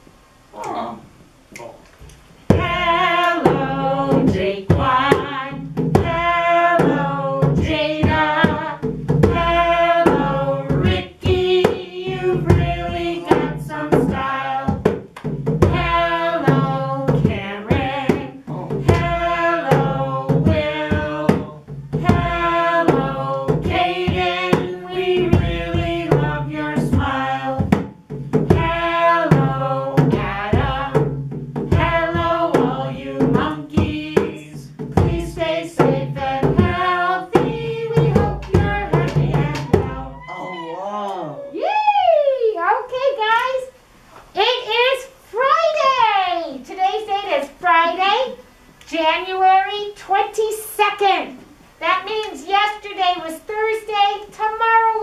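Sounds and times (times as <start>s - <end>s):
woman singing: 2.5s - 14.9s, 15.6s - 27.8s, 28.5s - 40.4s
djembe drum beat: 2.5s - 41.6s.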